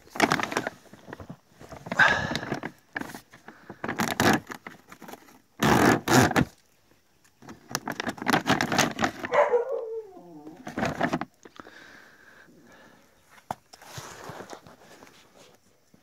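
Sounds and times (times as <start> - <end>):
plastic bag crinkling: 0.0 - 6.6, 7.4 - 11.4.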